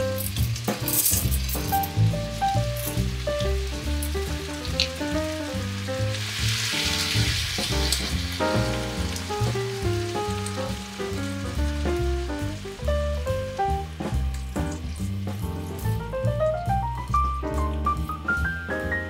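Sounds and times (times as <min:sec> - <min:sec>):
food sizzling in frying pan: 0:00.0 - 0:19.0
melodic background music: 0:00.0 - 0:19.0
cream being poured: 0:02.8 - 0:10.8.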